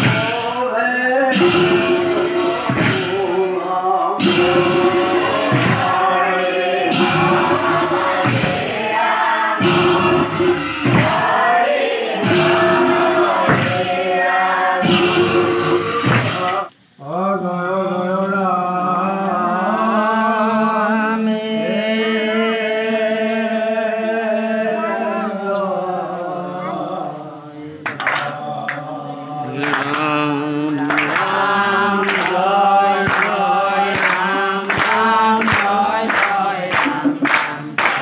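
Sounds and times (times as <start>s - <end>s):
sharp regular beats: 0.0s - 0.6s, 1.3s - 16.7s, 29.8s - 38.0s.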